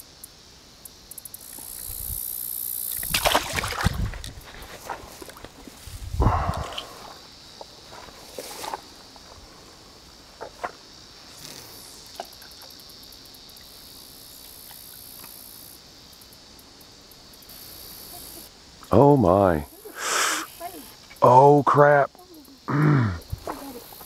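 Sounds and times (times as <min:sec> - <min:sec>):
crickets trilling: 0:00.0 - 0:24.0
rustling through dry weeds: 0:03.0 - 0:12.0.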